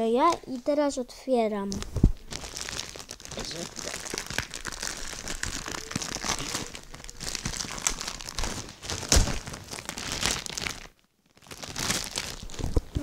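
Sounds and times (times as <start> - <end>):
plastic wrapping crinkling: 1.6 - 13.0.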